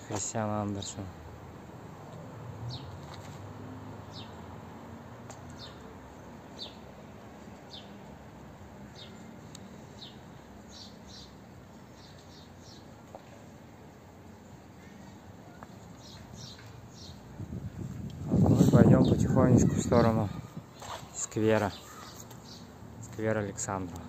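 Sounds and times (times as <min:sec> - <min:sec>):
small bird chirping: 0:15.5 - 0:17.2, 0:21.6 - 0:22.7.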